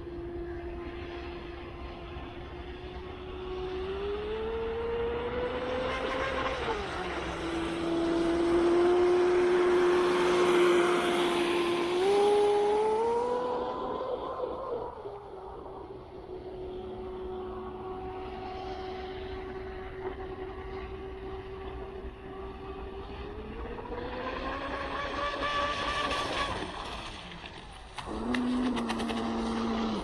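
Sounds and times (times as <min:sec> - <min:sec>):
hull and spray on water: 0:23.9 - 0:30.0.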